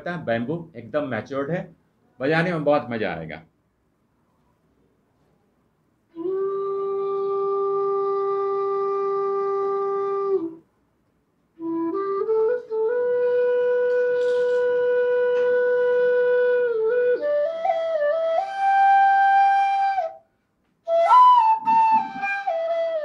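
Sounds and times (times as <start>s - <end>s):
bamboo flute playing: 6.1s - 10.6s, 11.6s - 23.0s.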